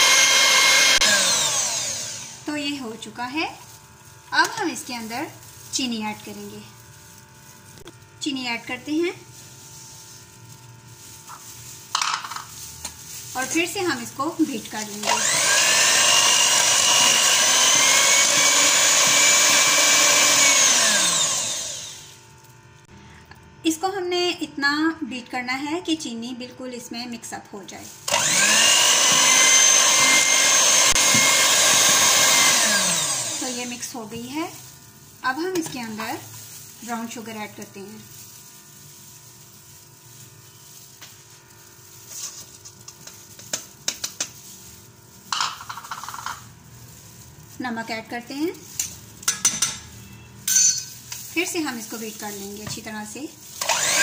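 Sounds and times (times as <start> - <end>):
electric hand mixer whining: 0.0 - 3.6, 13.3 - 22.2, 28.0 - 34.6, 51.6 - 54.0
sugar tipped into a metal bowl: 8.8 - 15.0, 33.5 - 53.6.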